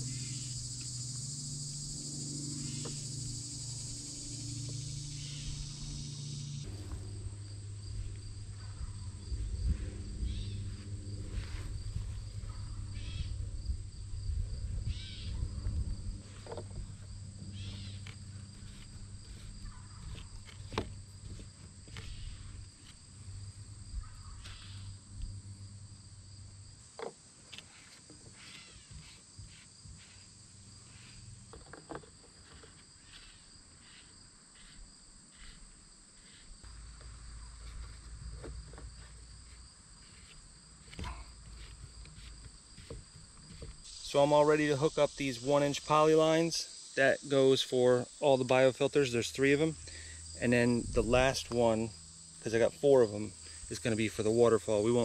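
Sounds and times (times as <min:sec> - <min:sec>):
low steady hum: 0:00.0 - 0:26.9
insects droning: 0:00.0 - 0:55.0.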